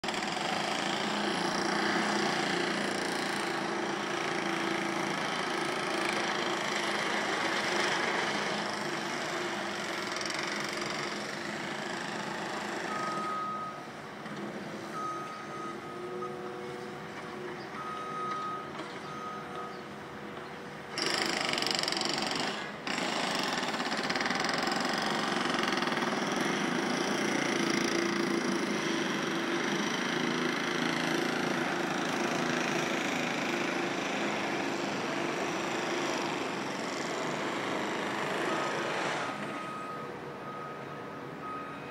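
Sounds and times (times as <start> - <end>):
construction machinery din: 0.0 - 41.9
reversing alarm beeps: 12.7 - 13.9, 14.8 - 19.9, 38.4 - 41.9.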